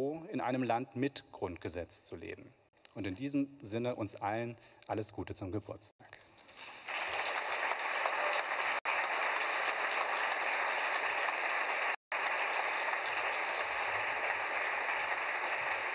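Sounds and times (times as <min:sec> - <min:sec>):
audience applauding: 0:06.6 - 0:15.9.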